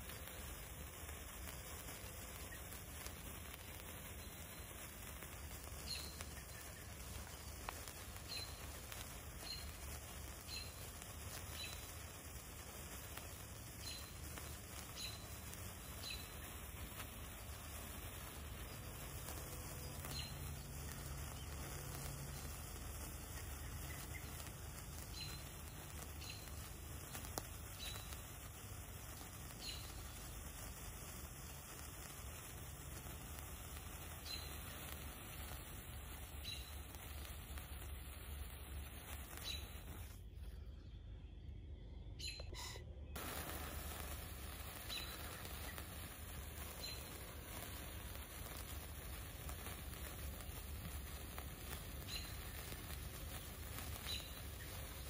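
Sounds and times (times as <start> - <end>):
sparkler fizzing and crackling: 0.0 - 40.6, 42.4 - 55.0
faint steady hiss: 0.0 - 55.0
small bird chirping: 1.6 - 55.0
soft ticks: 27.0 - 28.2.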